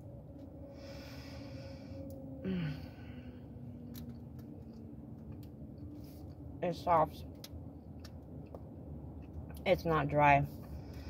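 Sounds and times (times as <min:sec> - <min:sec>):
breathing out through the nose: 0:00.7 - 0:03.6
person humming mm: 0:02.4 - 0:03.0.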